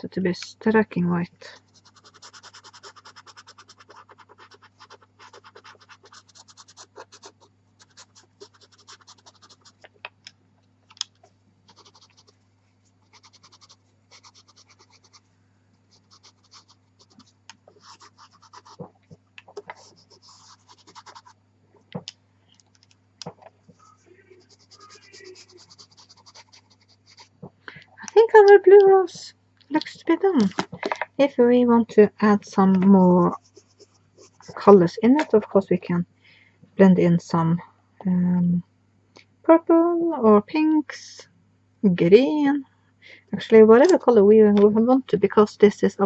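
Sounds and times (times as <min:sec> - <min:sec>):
faint low hum: 0:00.0 - 0:46.0
pencil strokes scratching on paper: 0:01.5 - 0:09.8, 0:11.7 - 0:12.4, 0:13.0 - 0:15.2, 0:15.9 - 0:18.9, 0:19.6 - 0:21.4, 0:23.8 - 0:27.4, 0:33.2 - 0:34.8.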